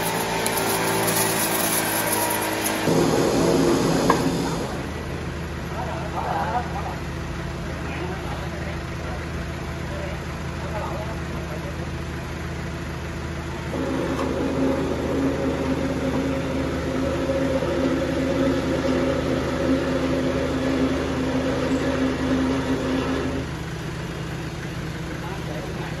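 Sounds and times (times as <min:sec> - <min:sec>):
saw blade cutting log drone: 0:00.0 - 0:05.0
sawmill running with low hum: 0:00.0 - 0:26.0.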